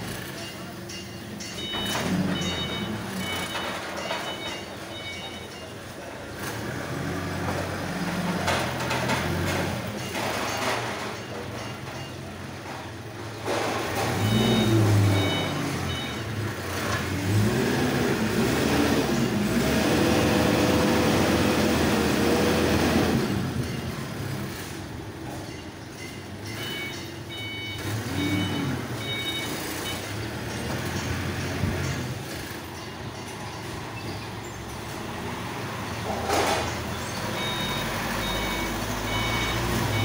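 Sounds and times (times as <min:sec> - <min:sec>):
reversing alarm beeps: 0:00.4 - 0:06.0, 0:14.0 - 0:16.4, 0:25.3 - 0:31.1, 0:36.9 - 0:40.0
forklift engine revving: 0:01.5 - 0:05.4, 0:06.2 - 0:11.1, 0:11.8 - 0:25.4, 0:26.5 - 0:32.8, 0:33.4 - 0:40.0.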